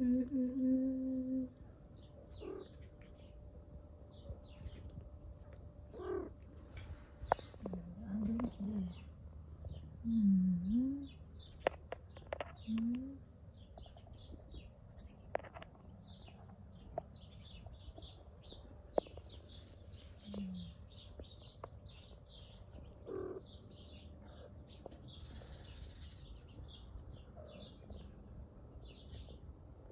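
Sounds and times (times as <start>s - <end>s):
small birds chirping: 0.0s - 29.9s
low wavering bird calls: 0.3s - 3.3s, 19.0s - 28.1s.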